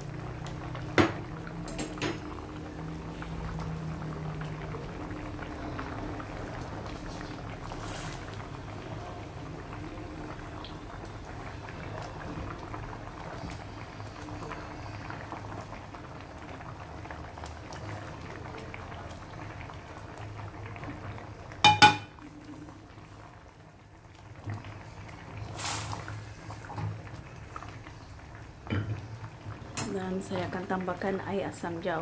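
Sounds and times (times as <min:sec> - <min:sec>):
curry bubbling at a simmer: 0:00.0 - 0:32.0
metal clanks against pot: 0:21.6 - 0:22.2.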